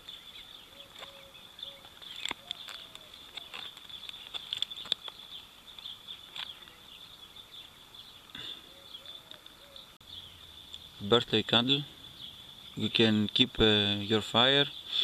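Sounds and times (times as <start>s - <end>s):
small items clicking and rustling: 1.8s - 6.8s.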